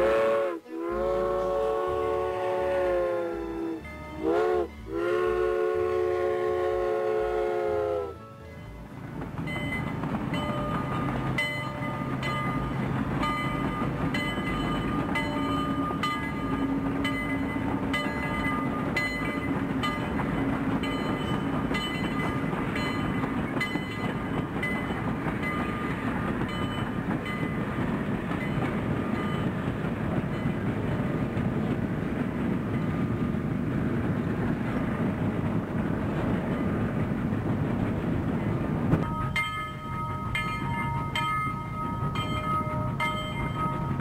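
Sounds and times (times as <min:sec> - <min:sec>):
train horn blasts: 0:00.0 - 0:08.8
train rumble: 0:00.0 - 0:44.0
wheels clicking over rails: 0:09.0 - 0:44.0.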